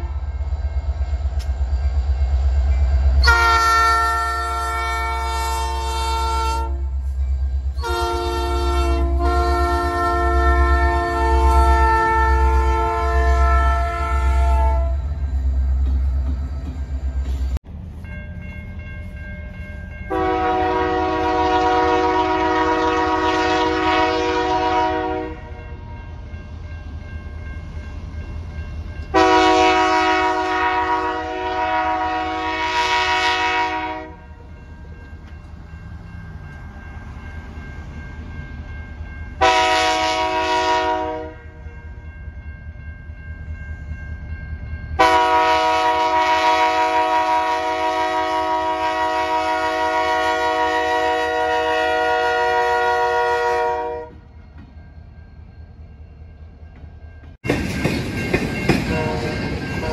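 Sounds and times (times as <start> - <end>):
low locomotive engine rumble: 0.0 - 59.9
locomotive air horn blasts: 3.2 - 7.0, 7.8 - 15.1, 20.1 - 25.6, 29.1 - 34.2, 39.4 - 41.6, 45.0 - 54.3, 58.9 - 59.9.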